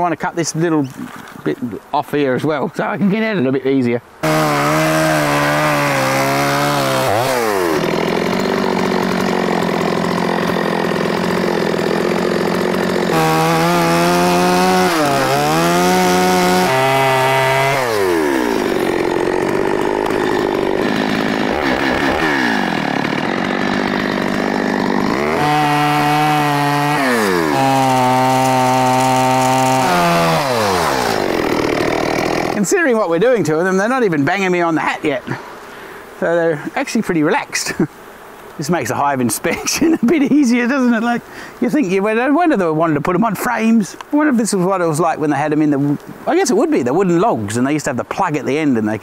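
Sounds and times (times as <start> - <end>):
chainsaw cutting wood: 4.2 - 33.2.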